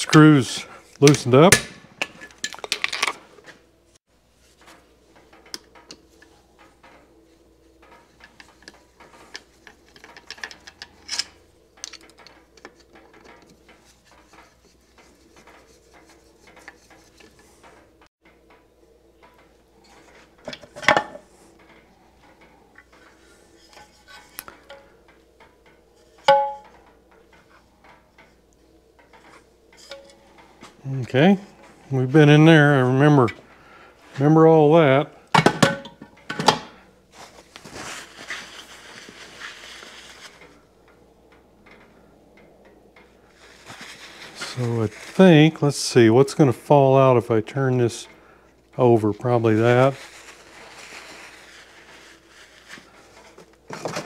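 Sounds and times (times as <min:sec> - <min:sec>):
metallic clanks: 0:20.4 - 0:28.3, 0:29.0 - 0:30.7.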